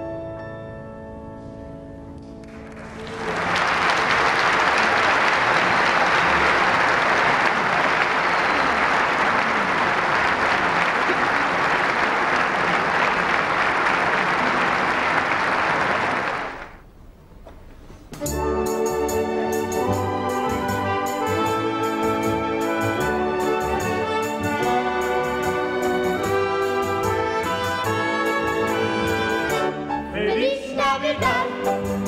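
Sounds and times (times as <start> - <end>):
keyboard music: 0.0 - 3.1, 18.2 - 32.0
audience applauding: 2.5 - 16.9.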